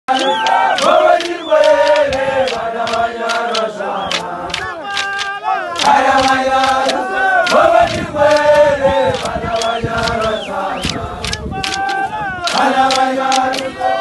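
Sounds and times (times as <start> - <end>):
men chanting and singing: 0.1 - 14.0
sharp clacks: 0.1 - 14.0.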